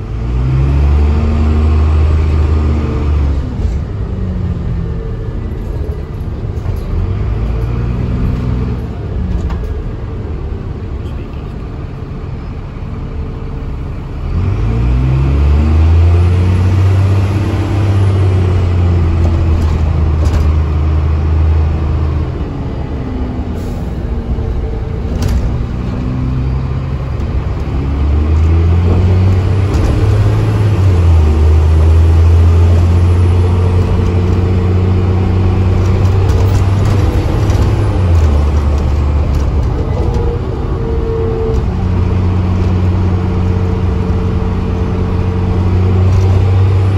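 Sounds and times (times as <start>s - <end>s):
bus diesel engine accelerating: 0.0s - 46.9s
rattling clicks from bus body: 5.5s - 10.2s, 19.0s - 21.2s, 24.4s - 32.4s, 33.4s - 44.9s, 46.0s - 46.9s.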